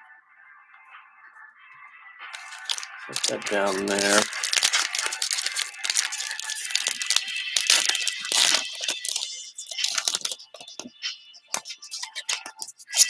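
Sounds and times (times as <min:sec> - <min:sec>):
foil wrapper crinkling: 0:02.4 - 0:10.9, 0:11.5 - 0:13.0.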